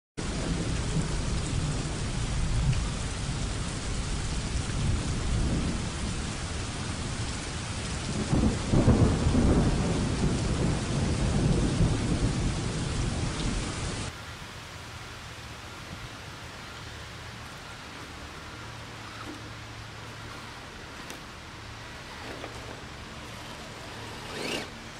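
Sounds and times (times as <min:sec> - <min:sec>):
rolling thunder: 0:00.2 - 0:14.1
steady rain: 0:00.2 - 0:24.9.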